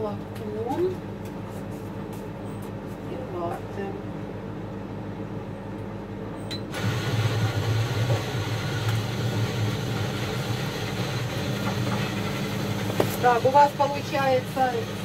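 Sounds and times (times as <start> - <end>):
coffee machine whirring: 6.7 - 15.0.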